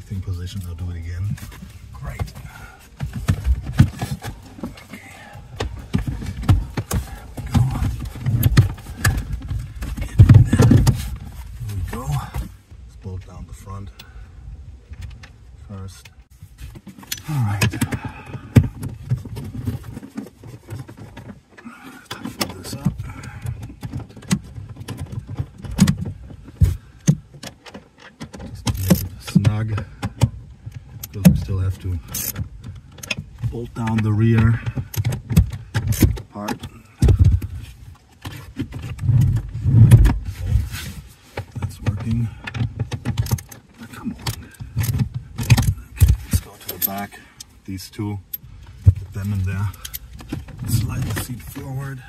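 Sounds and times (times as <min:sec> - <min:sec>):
seat frame knocking and rattling: 0:00.0 - 0:13.2, 0:16.4 - 0:47.3, 0:48.2 - 0:52.0
heavy thuds: 0:01.2 - 0:12.6
heavy thumps: 0:01.2 - 0:12.6.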